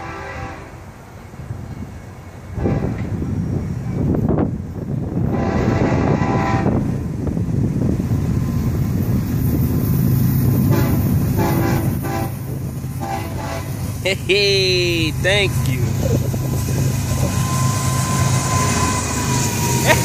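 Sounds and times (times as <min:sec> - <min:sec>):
train air horn blasts: 0:00.0 - 0:00.8, 0:02.6 - 0:03.1, 0:05.3 - 0:06.8, 0:10.7 - 0:12.4, 0:13.0 - 0:13.8
diesel locomotive engine rumble: 0:00.0 - 0:20.0.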